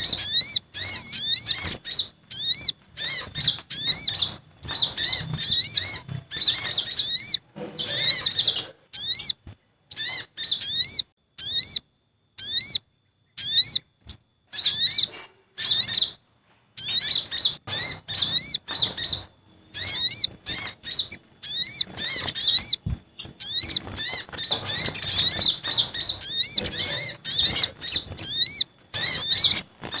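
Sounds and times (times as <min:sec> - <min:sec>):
sunbirds chirping: 0:00.0 - 0:30.0.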